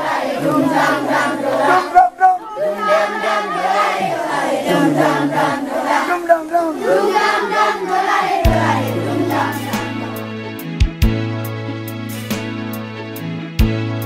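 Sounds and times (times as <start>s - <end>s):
children chanting and singing: 0.0s - 10.3s.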